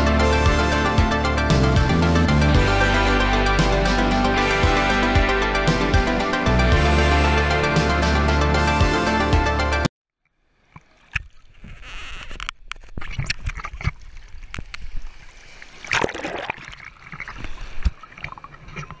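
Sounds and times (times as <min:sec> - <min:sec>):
seawater splashing and sloshing: 0:12.9 - 0:19.0.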